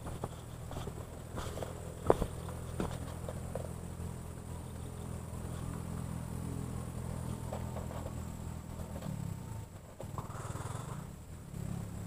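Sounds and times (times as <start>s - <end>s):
low engine hum: 0.0s - 12.0s.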